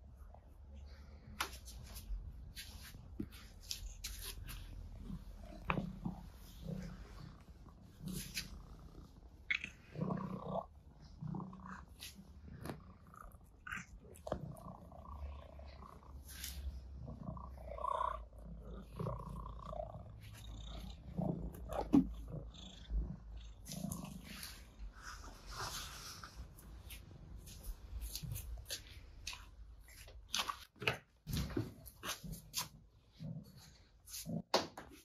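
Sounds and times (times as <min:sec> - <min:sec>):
soft taps and rubbing: 0:01.3 - 0:06.5
cat purring: 0:03.3 - 0:26.6.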